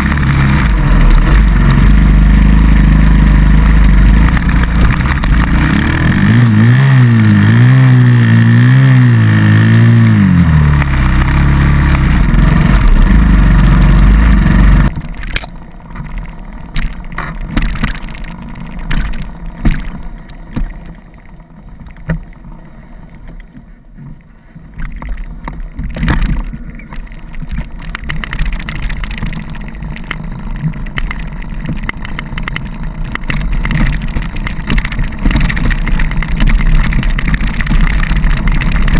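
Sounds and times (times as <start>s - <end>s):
dirt bike engine revving: 0.0s - 20.7s
knocks and clicks: 3.8s - 6.4s, 12.0s - 22.4s, 24.8s - 38.9s.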